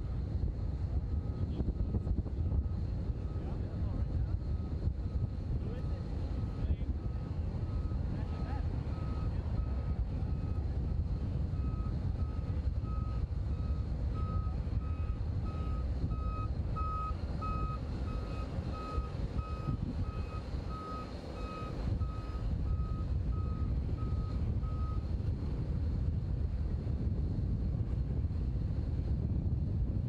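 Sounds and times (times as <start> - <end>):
low steady rumble: 0.0 - 30.0
backup alarm beeping: 11.6 - 25.0.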